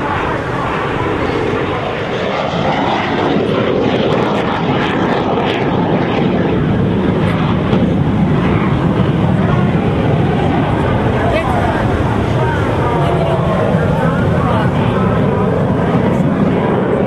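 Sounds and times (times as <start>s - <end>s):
jet aircraft roar: 0.0s - 17.0s.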